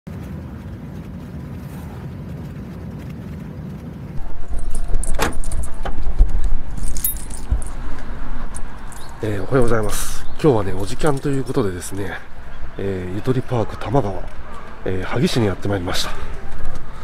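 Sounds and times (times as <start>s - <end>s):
wind noise on microphone: 0.1s - 10.4s
car road noise rumble: 3.9s - 17.0s.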